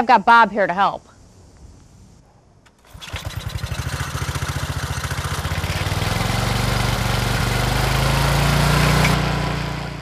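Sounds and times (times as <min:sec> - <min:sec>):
small gas engine running: 0:02.7 - 0:10.0.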